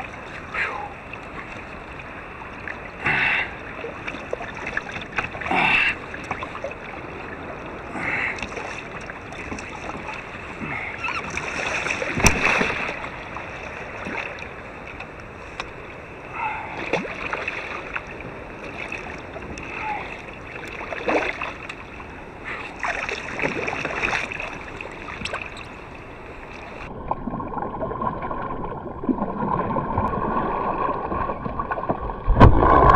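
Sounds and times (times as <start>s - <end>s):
water splashing around a kayak: 0.0s - 32.9s.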